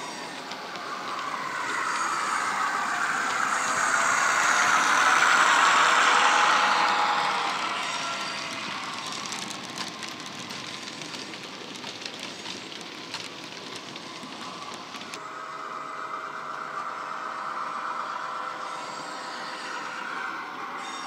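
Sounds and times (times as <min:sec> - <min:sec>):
model wagons rattling on track: 0:00.0 - 0:15.2.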